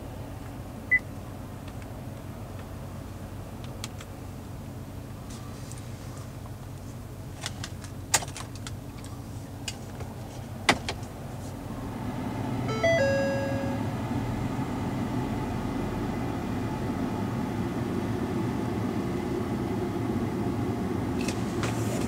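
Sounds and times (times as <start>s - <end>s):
electronic dash chime: 12.7s - 13.9s.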